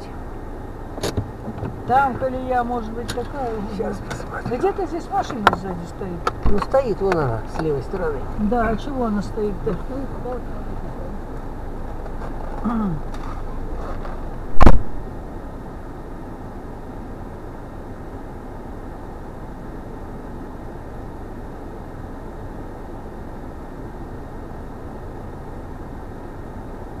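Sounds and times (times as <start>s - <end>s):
car engine idling: 0.0s - 27.0s
loud thump: 14.5s - 15.0s.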